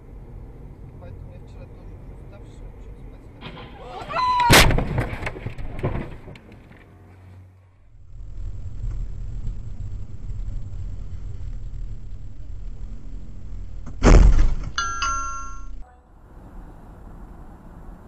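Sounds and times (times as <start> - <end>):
car collision crash: 3.4 - 6.4, 13.8 - 14.8
passing car traffic noise: 6.7 - 18.0
car interior road rumble: 7.7 - 18.0.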